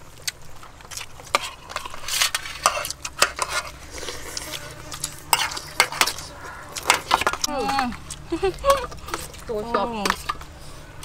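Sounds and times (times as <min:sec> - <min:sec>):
metal spoons scraping steel tray: 0:01.3 - 0:07.7.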